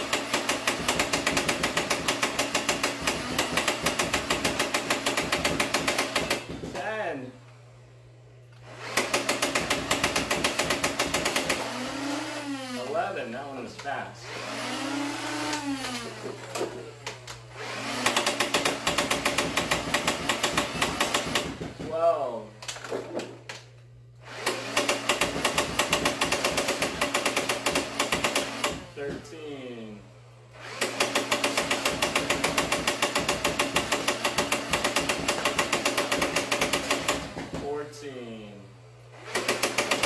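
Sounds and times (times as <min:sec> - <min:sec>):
toy blaster rapid firing: 0:00.0 - 0:06.6, 0:08.7 - 0:12.7, 0:17.7 - 0:21.7, 0:24.3 - 0:28.9, 0:30.6 - 0:37.4, 0:39.2 - 0:40.0
toy blaster motors whining: 0:14.3 - 0:21.6.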